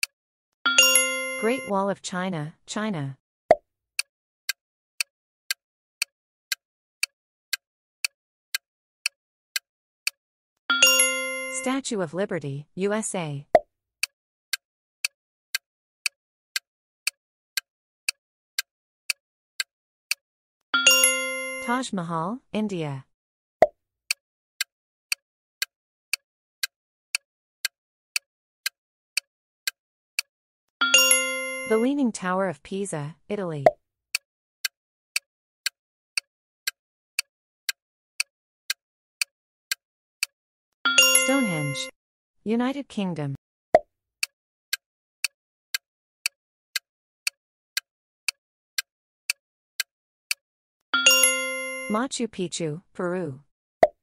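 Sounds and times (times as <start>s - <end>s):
countdown timer ticking: 0.7s - 1.8s, 10.0s - 12.0s, 20.8s - 22.0s, 30.2s - 32.2s, 40.9s - 43.4s, 51.0s - 53.3s
clock-like timer ticking: 4.0s - 11.8s, 24.1s - 31.9s, 33.6s - 40.3s, 44.2s - 50.4s.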